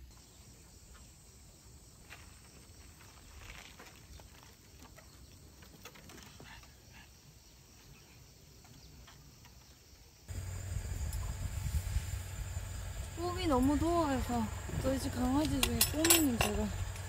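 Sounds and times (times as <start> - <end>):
low hum: 10.3 - 17.0.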